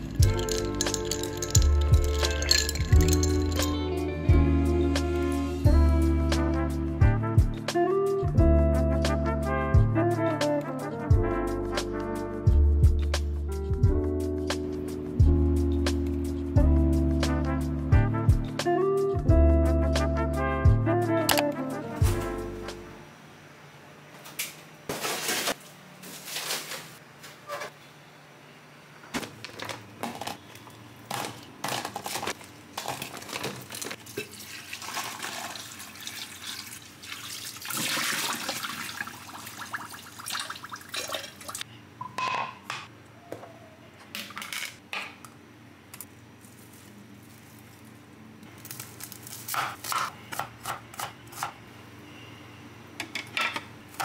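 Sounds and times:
cookware and utensils clattering: 0:00.0 - 0:03.8.

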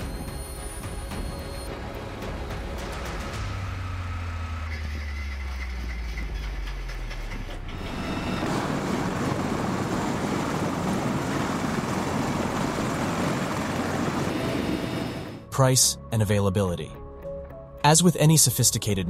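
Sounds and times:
helicopter turbines and rotors: 0:00.0 - 0:15.9
heater engine hum: 0:02.0 - 0:15.5.

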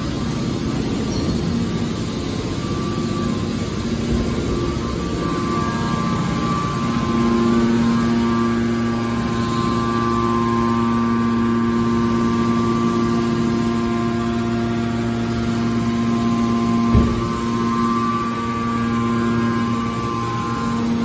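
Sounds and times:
hydraulic baler humming: 0:00.0 - 0:21.0
short thump: 0:16.9 - 0:17.4.

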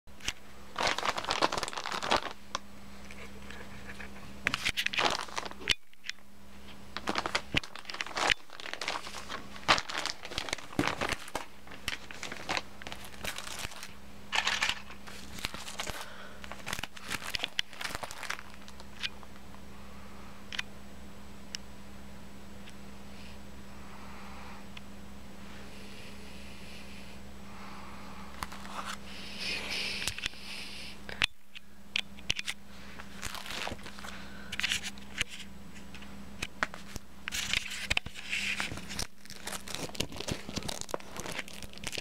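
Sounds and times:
steady low hum: 0:00.1 - 0:42.0
plastic bag crinkling: 0:00.2 - 0:05.8, 0:06.9 - 0:19.3, 0:33.0 - 0:35.2, 0:36.6 - 0:42.0.

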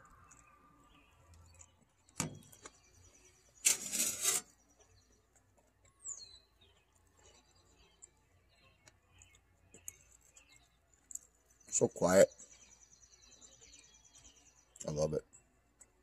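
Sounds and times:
songbirds chirping: 0:00.0 - 0:16.0
short loud scrape: 0:03.6 - 0:04.5.

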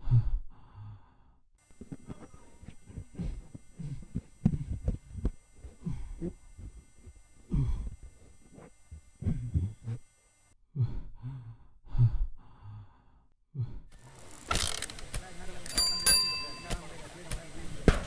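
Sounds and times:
person sighing and breathing heavily: 0:00.0 - 0:10.0, 0:10.7 - 0:14.0.

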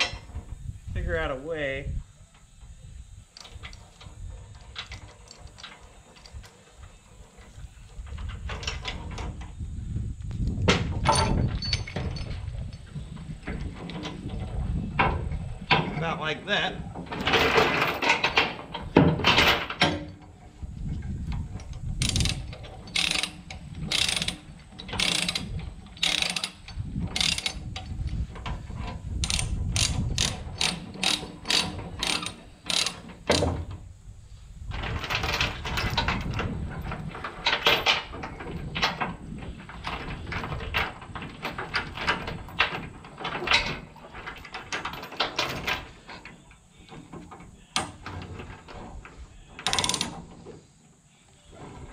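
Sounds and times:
ratchet pawl clicking: 0:21.9 - 0:28.2, 0:29.2 - 0:33.5, 0:49.6 - 0:50.1.

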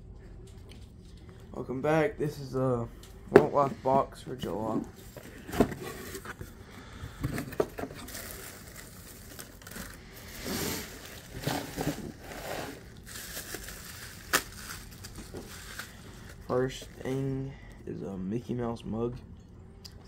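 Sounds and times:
shredded paper rustling: 0:07.7 - 0:17.1.

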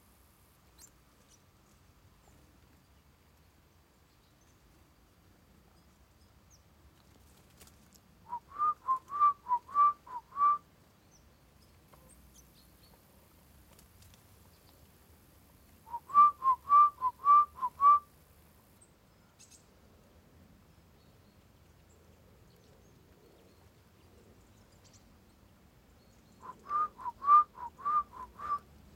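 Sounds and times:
person whistling: 0:08.3 - 0:10.6, 0:15.9 - 0:18.0, 0:26.4 - 0:28.6.

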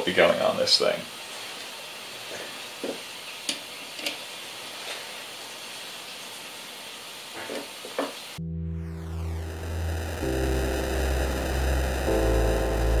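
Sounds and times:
steady background hiss: 0:00.0 - 0:08.4.

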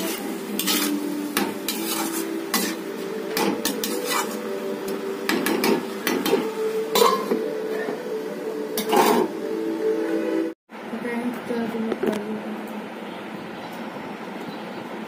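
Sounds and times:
metal spatula scraping pan: 0:00.0 - 0:04.6, 0:05.3 - 0:07.4, 0:08.8 - 0:09.4.

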